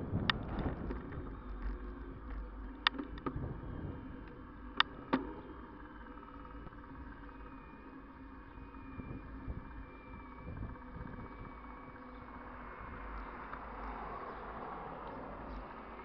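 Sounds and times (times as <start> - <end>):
tyres rolling on pavement: 0.0 - 8.8
faint high whine: 0.0 - 16.0
wind rumbling on microphone: 0.0 - 16.0.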